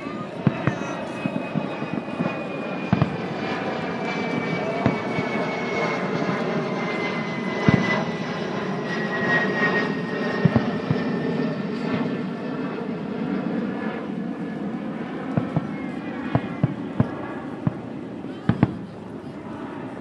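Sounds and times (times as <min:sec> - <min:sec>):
airplane engines passing: 0:00.0 - 0:20.0
dull firework booms: 0:00.4 - 0:03.4, 0:04.8 - 0:05.3, 0:07.6 - 0:08.2, 0:10.4 - 0:11.1, 0:15.4 - 0:18.9.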